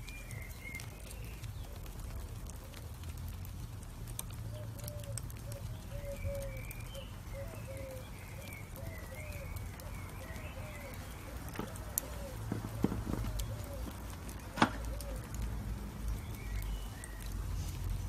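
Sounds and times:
fire crackling: 0.0s - 18.0s
bird calling: 4.5s - 15.4s.

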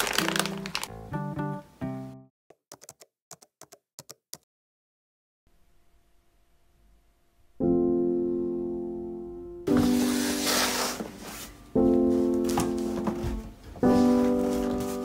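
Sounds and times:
background music: 0.0s - 2.3s.

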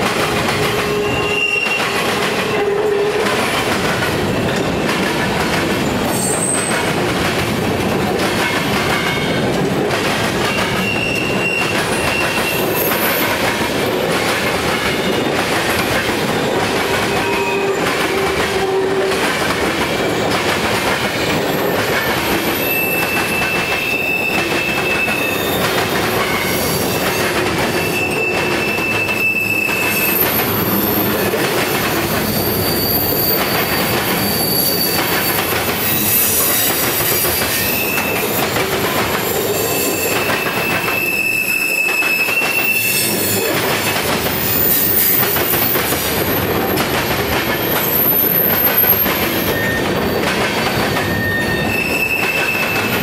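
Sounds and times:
freight train wheels rumbling on rail: 0.0s - 53.0s
high-pitched wheel squeals: 0.7s - 3.1s, 6.0s - 6.9s, 10.5s - 13.4s, 21.6s - 38.6s, 39.2s - 46.4s, 47.6s - 53.0s.

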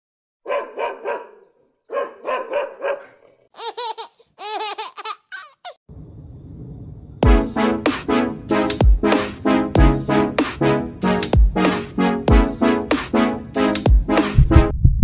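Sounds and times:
dog barking: 0.4s - 3.5s.

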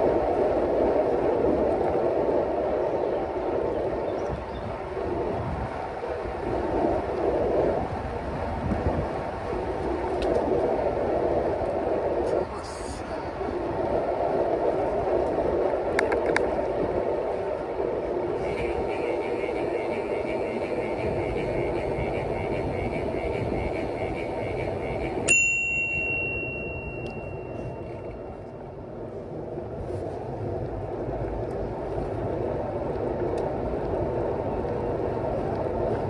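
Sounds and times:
rushing noise of riding: 0.0s - 36.0s
bicycle bell ringing: 25.2s - 27.9s.

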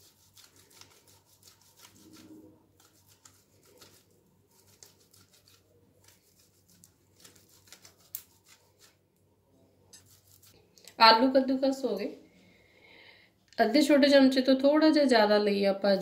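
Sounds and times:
potato scraping on grater: 0.0s - 9.0s, 10.0s - 10.6s.

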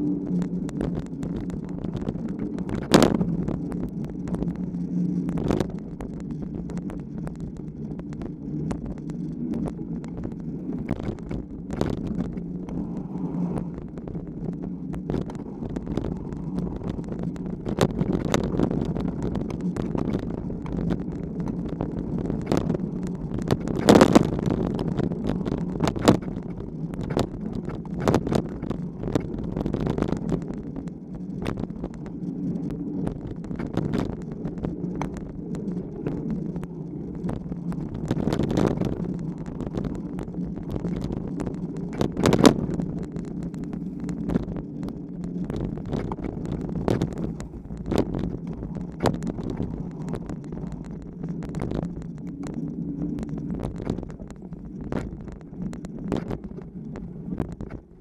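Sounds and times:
bike rattling over bumps: 0.0s - 58.0s
bike tyre rolling on dirt: 0.0s - 58.0s.

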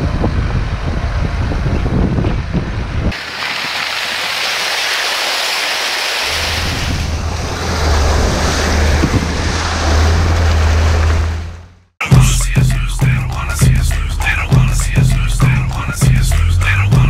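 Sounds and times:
low engine drone: 6.6s - 17.0s.

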